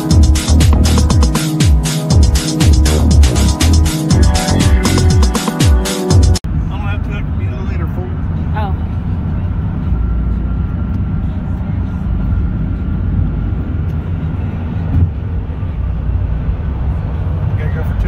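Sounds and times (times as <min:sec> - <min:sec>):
tyre and wind noise in car: 0:12.9 - 0:15.6.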